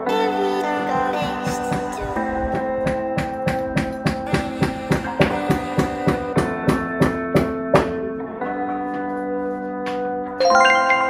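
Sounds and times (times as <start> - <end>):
sustained music chords: 10.4 - 11.0.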